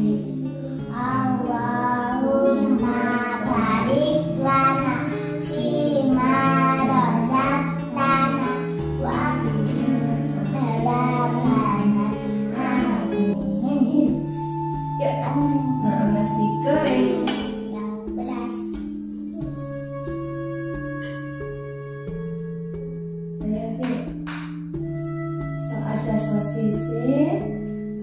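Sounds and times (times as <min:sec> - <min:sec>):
children singing: 0:00.0 - 0:17.7
plucked guitar music: 0:00.0 - 0:26.8.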